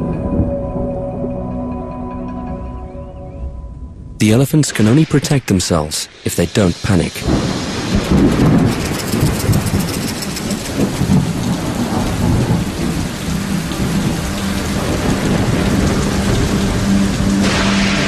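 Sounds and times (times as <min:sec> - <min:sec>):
heavy rain: 0:04.2 - 0:18.0
thunder rumble: 0:04.2 - 0:18.0.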